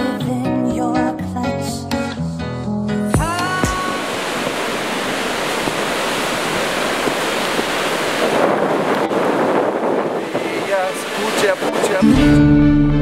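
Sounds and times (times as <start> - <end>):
waves breaking on beach: 3.3 - 12.1.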